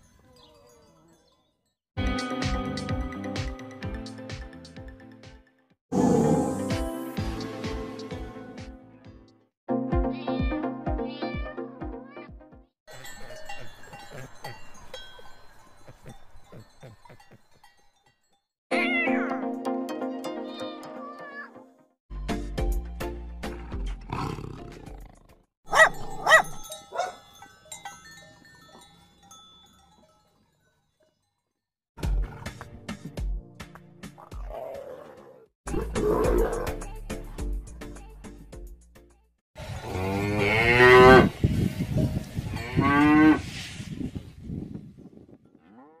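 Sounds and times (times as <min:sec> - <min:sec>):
big cat roaring: 0:05.9 - 0:06.7, 0:34.4 - 0:36.7
dog barking: 0:25.7 - 0:27.2
cow mooing: 0:39.8 - 0:41.4, 0:42.5 - 0:43.4, 0:45.6 - 0:46.0.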